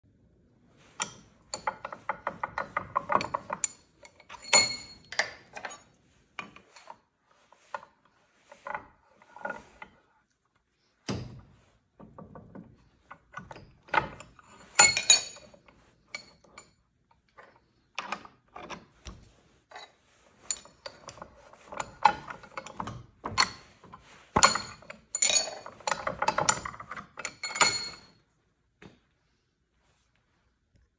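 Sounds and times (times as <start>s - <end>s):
vise handle metal clicks and rattles: 1.0s - 7.0s, 11.1s - 19.2s, 20.5s - 28.1s.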